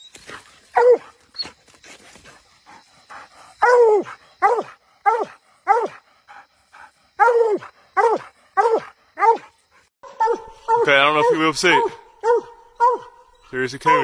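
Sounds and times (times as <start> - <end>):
dog barking: 0.7 - 1.2, 3.6 - 6.0, 7.2 - 14.0.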